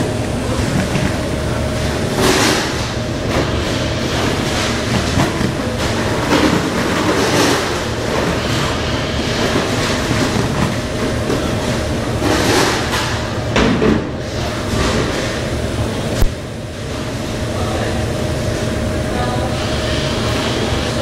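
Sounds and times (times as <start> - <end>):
machine clatter: 0.0 - 14.0
machinery noise with hum: 0.0 - 21.0.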